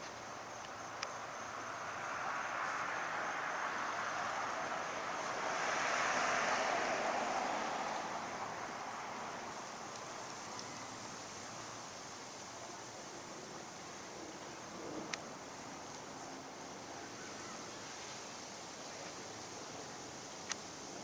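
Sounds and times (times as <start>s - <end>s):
outdoor background rush: 0.0s - 21.0s.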